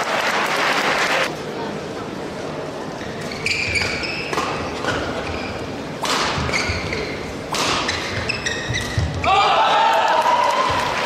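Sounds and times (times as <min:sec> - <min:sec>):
shoes squeaking on court: 0:03.0 - 0:09.2
rackets hitting shuttlecock: 0:03.6 - 0:05.3, 0:06.0 - 0:09.3.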